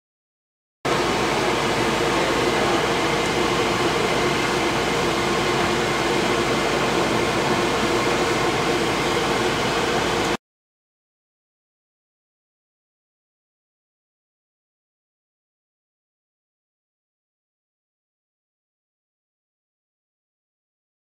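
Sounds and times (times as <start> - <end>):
mechanical whirring hum: 0.9 - 10.4.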